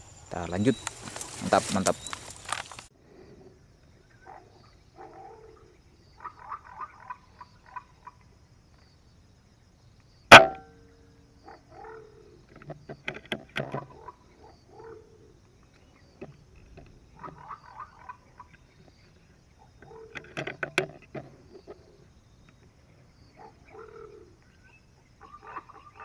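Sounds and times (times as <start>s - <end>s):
short animal calls: 25.2s - 26.0s.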